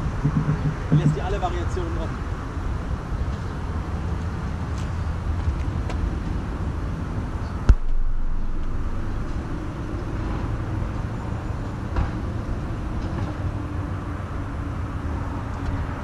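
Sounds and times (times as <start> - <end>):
low outdoor rumble: 0.0 - 16.0
brief knock: 0.1 - 1.2.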